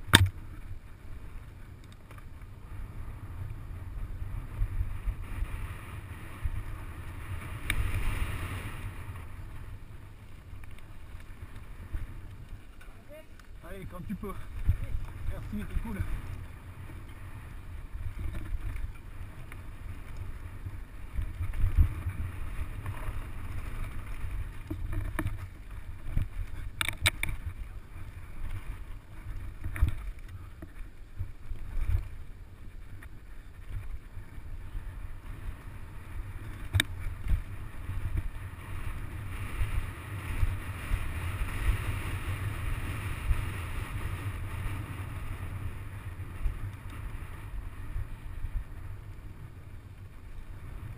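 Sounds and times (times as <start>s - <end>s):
bike knocking and rattling: 0.0s - 2.6s, 3.4s - 50.9s
bike tyres rumbling on dirt: 0.0s - 50.9s
wind on microphone: 11.5s - 50.9s.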